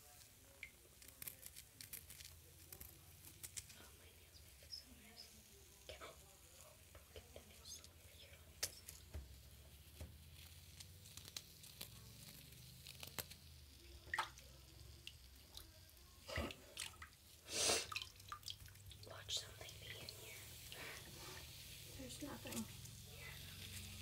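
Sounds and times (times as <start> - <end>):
wet squishes and clicks: 12.8 - 15.7, 17.9 - 19.1.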